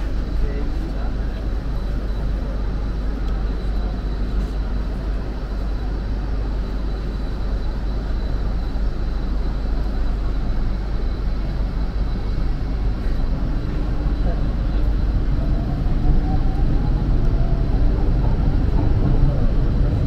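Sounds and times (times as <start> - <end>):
faint high whine: 0.0 - 20.0
moving vehicle rumble: 10.7 - 20.0.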